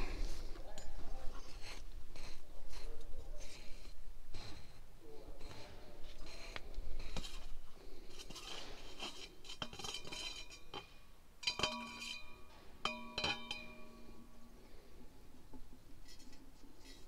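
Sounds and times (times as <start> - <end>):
steel bar clinking on metal: 9.0 - 14.3.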